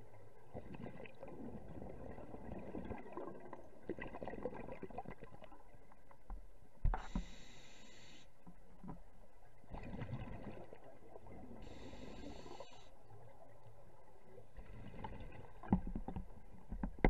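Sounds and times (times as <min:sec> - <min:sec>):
exhaled bubbles rumbling: 0:00.0 - 0:05.8, 0:09.6 - 0:12.5, 0:14.4 - 0:17.0
regulator inhalation hiss: 0:07.0 - 0:08.3, 0:11.7 - 0:12.9.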